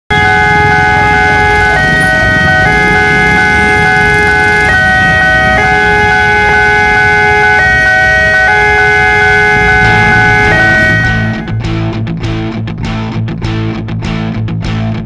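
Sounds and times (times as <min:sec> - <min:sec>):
two-tone level crossing alarm: 0:00.1 - 0:11.7
motorbike engines rumbling: 0:00.1 - 0:12.1.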